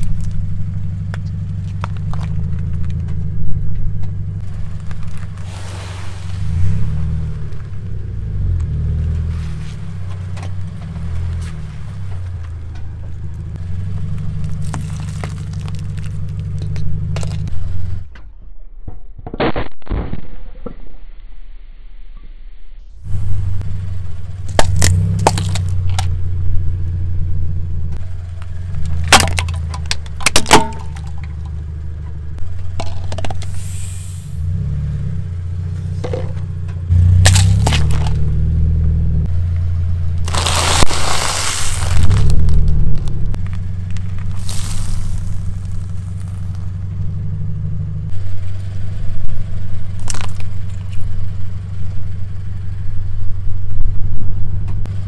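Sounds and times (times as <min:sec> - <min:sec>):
plastic cracking under tyre: 0:00.0 - 0:03.2, 0:04.0 - 0:05.4, 0:14.0 - 0:17.5, 0:24.4 - 0:26.2, 0:28.4 - 0:31.5, 0:37.2 - 0:38.4, 0:40.2 - 0:46.8, 0:49.9 - 0:51.2
car engine humming: 0:00.0 - 0:18.2, 0:22.9 - 0:55.0.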